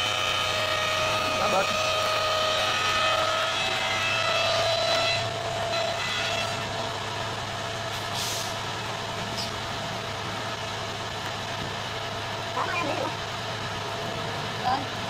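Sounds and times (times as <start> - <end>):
burst of hiss: 7.9 - 8.6.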